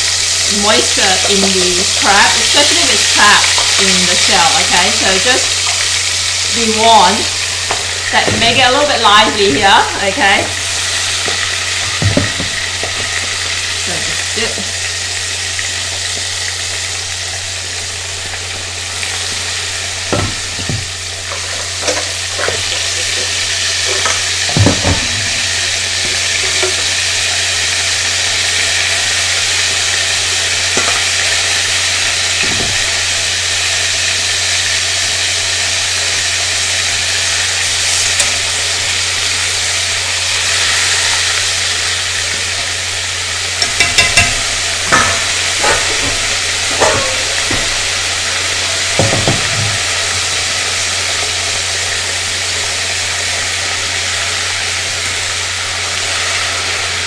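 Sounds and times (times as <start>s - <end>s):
food sizzling in hot oil: 0.0s - 57.0s
utensil clinking against pot: 43.6s - 47.9s.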